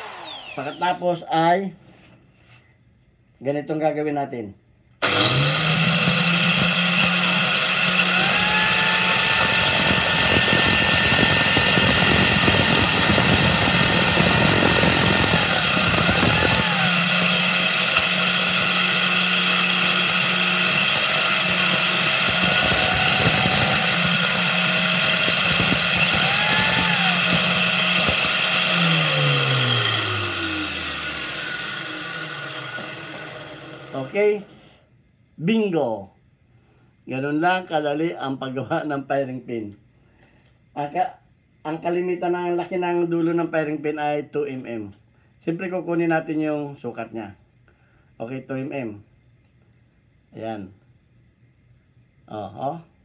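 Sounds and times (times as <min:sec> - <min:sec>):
angle grinder running: 0:00.0 - 0:01.0, 0:05.0 - 0:34.5
drill bit grinding on wheel: 0:00.0 - 0:01.0, 0:05.0 - 0:34.5
grinder winding down hum: 0:00.0 - 0:01.0, 0:05.0 - 0:34.5.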